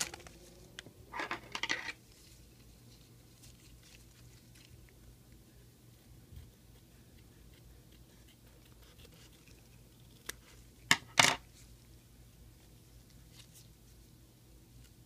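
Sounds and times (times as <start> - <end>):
face mask crinkling and rustling: 0.0 - 5.0.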